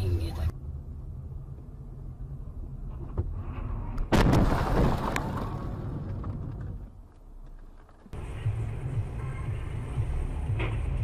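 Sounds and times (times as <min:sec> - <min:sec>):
car rumbling on the road: 0:00.0 - 0:11.0
car collision impact crunch: 0:04.0 - 0:08.2.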